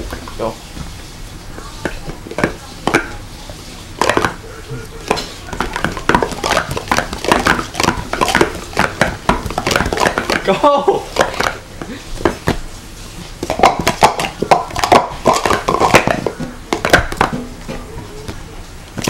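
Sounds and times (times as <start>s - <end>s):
plastic cups clacking: 4.0s - 12.6s, 13.4s - 18.4s.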